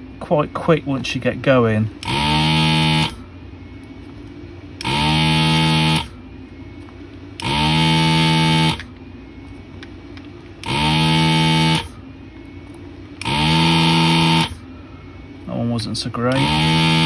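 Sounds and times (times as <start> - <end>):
vacuum pump buzzing: 0.0 - 3.9, 4.6 - 9.9, 10.5 - 17.0
low steady hum: 0.0 - 17.0.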